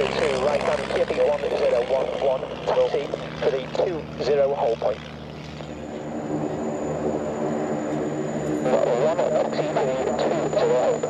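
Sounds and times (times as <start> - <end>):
aircraft engine running: 0.0 - 11.0
loud wavering sound: 5.7 - 11.0.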